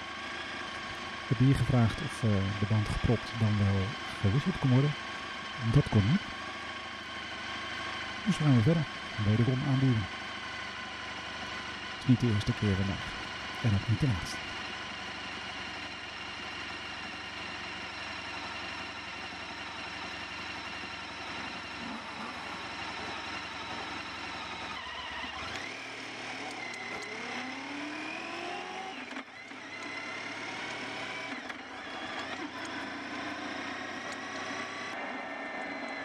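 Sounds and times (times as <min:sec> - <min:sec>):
motorcycle engine idling: 0:00.0 - 0:27.6
motorcycle accelerating: 0:00.0 - 0:36.0.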